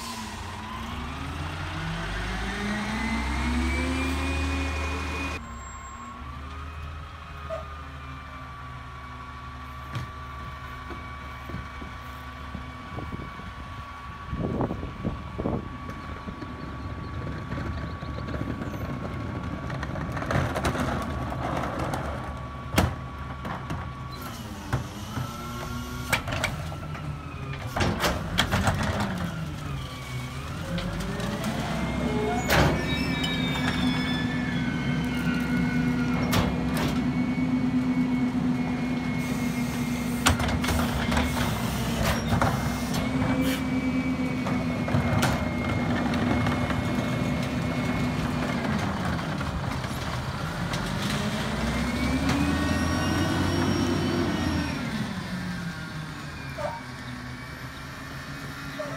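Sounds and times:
garbage truck engine running: 7.7s - 58.9s
cart knocking and banging: 17.2s - 23.9s.

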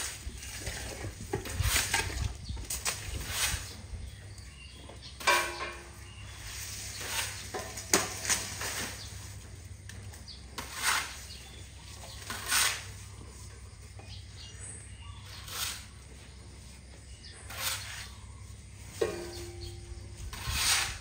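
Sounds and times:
steady low hum: 0.0s - 21.0s
elephant trunk crunching grass: 6.1s - 9.4s.

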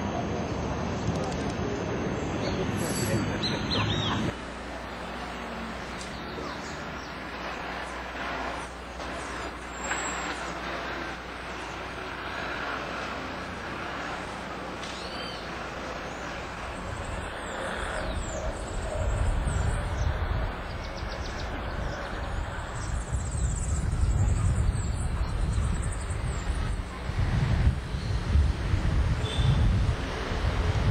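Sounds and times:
bird chirps: 2.2s - 4.3s, 14.9s - 26.7s.

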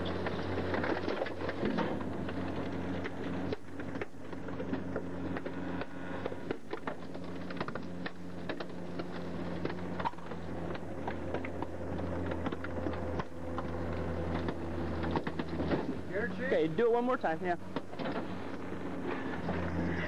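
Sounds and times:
garbage truck humming: 0.0s - 20.0s.

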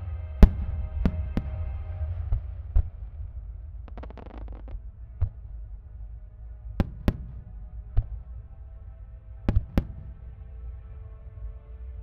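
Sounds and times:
faint music: 0.0s - 12.0s
low steady rumble: 0.0s - 12.0s
fireworks bursting: 0.4s - 3.2s, 3.8s - 5.5s.

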